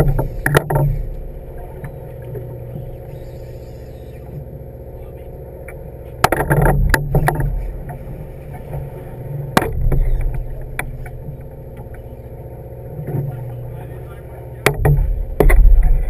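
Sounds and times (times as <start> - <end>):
water splashing against hull: 0.0 - 4.8, 5.6 - 16.0
boat engine humming: 0.0 - 16.0
sharp knocks: 9.5 - 11.2, 14.6 - 16.0.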